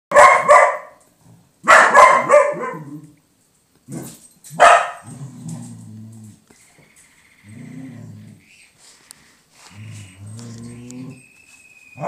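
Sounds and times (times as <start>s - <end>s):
dog barking: 0.1s - 1.0s, 1.6s - 2.9s, 4.6s - 5.1s
dog growling: 5.0s - 6.4s, 7.4s - 8.4s, 9.7s - 11.2s.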